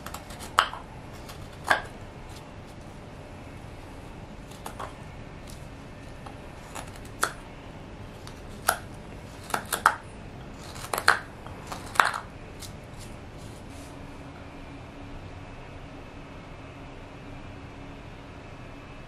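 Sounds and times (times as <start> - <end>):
knife carving wood: 0.0 - 2.9, 3.6 - 7.5, 8.1 - 13.9.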